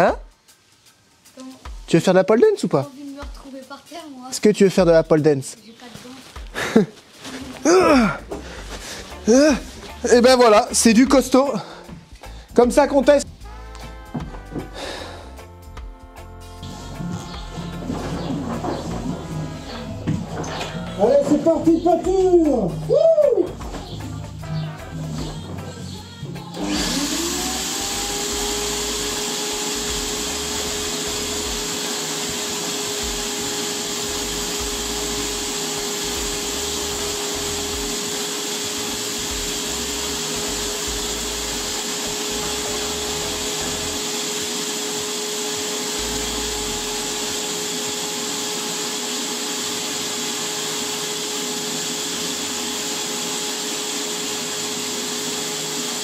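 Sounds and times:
paint sprayer turbine whine: 16.2s - 25.5s, 26.4s - 56.0s.

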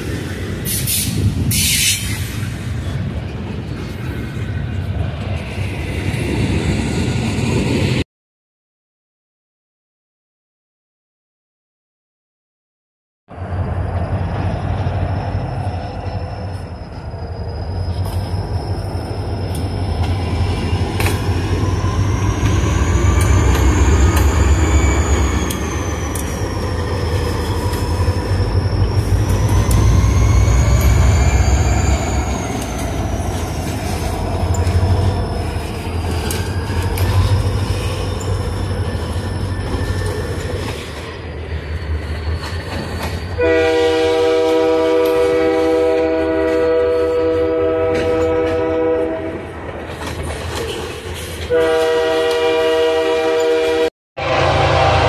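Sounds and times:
train wheels squealing: 0.6s - 4.2s, 13.4s - 44.0s
wheels clacking over rail joints: 19.4s - 43.4s
train horn: 43.4s - 49.5s, 51.5s - 55.0s.

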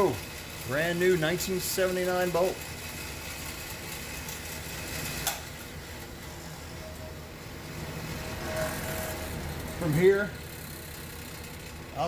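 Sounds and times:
bench grinder motor humming: 8.1s - 12.0s.

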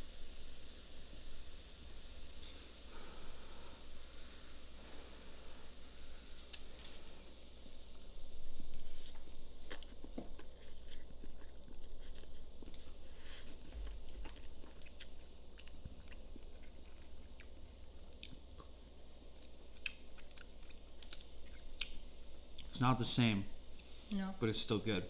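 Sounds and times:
person chewing food: 8.7s - 22.7s.

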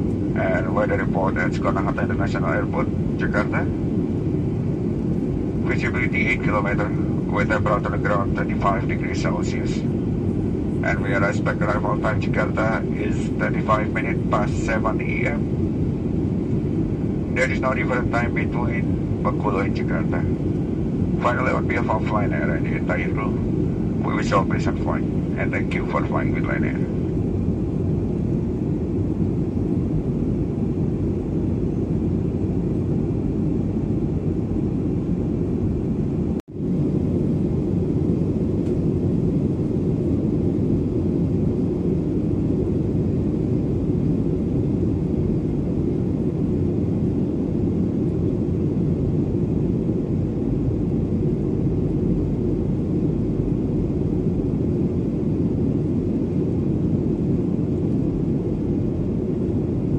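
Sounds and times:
airplane cabin drone: 0.0s - 59.9s.

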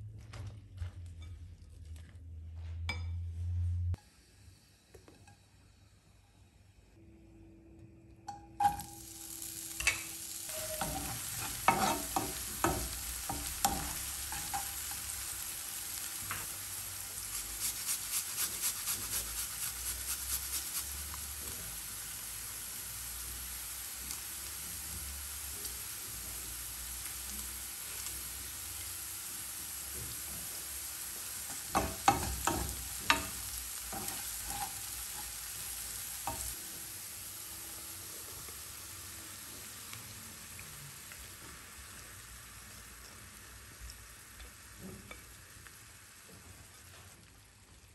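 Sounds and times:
onion sizzling in oil: 8.6s - 47.9s
garlic grating scrapes: 10.5s - 12.3s
wooden spoon scraping pan: 10.5s - 14.7s, 31.5s - 35.4s.

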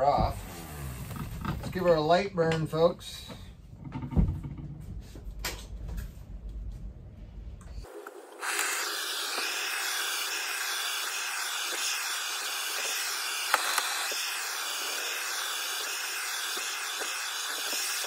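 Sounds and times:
propane torch hissing: 7.8s - 18.0s.

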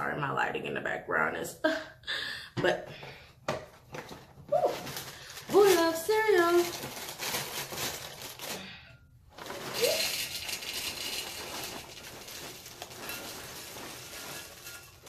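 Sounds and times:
cereal pouring into glass bowl: 9.4s - 15.0s.

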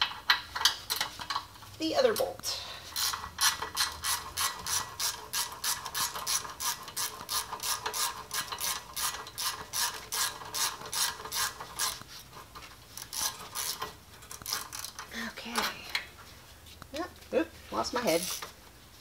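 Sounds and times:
ratchet wrench clicking: 2.9s - 12.0s, 13.0s - 15.1s, 18.2s - 18.6s.

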